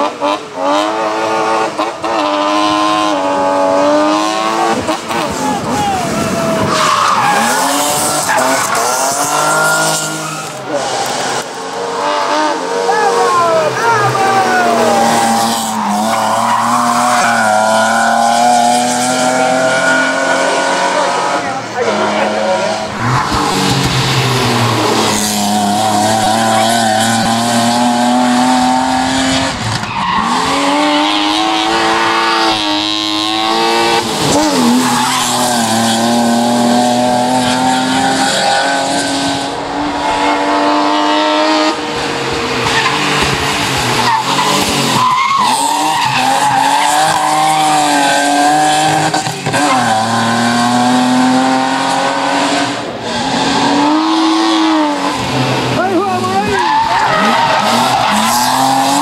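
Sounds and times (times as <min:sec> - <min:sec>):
car engine revving: 0:00.0 - 0:59.0
tyres squealing: 0:55.8 - 0:59.0.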